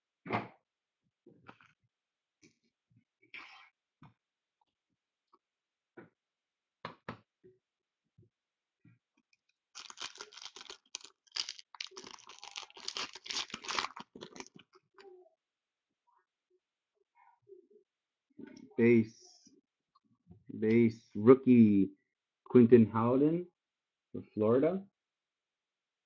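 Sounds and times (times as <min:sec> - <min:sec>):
foil wrapper crinkling and tearing: 0:09.7 - 0:14.8.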